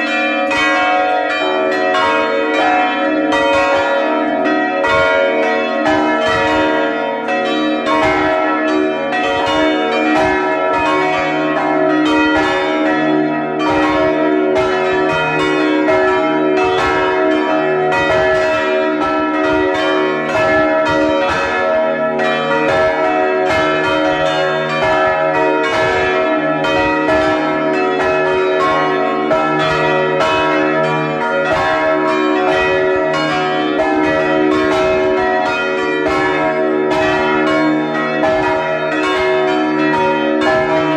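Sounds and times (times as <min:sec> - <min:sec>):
church bells ringing: 0:00.0 - 0:40.9.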